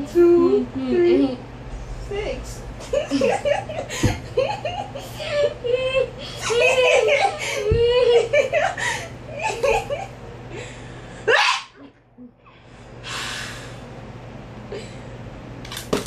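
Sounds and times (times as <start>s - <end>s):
girls' voices: 0.0s - 3.4s
breathy exhale: 12.5s - 13.9s.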